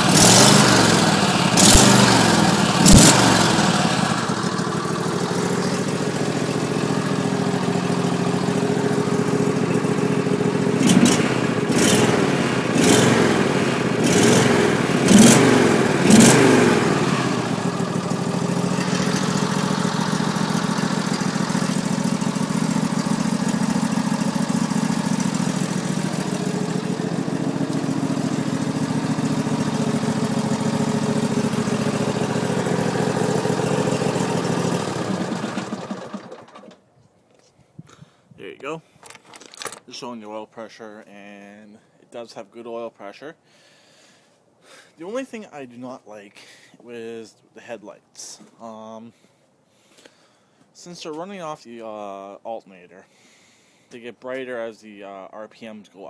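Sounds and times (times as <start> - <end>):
garden tractor engine revving: 0.0 - 36.8.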